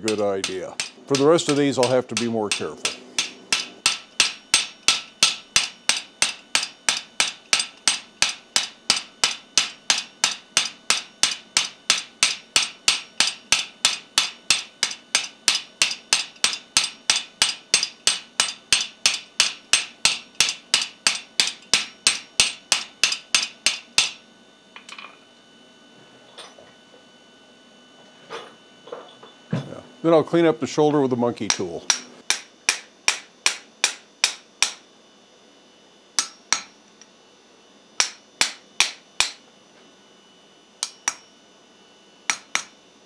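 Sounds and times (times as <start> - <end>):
hammer clanging on steel: 0.0 - 24.2, 31.5 - 34.8, 40.8 - 41.3.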